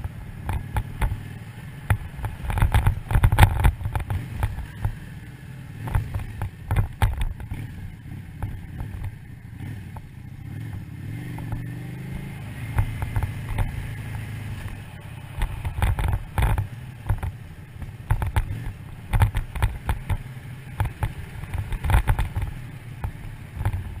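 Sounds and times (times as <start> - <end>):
motorcycle engine running: 0.0 - 24.0.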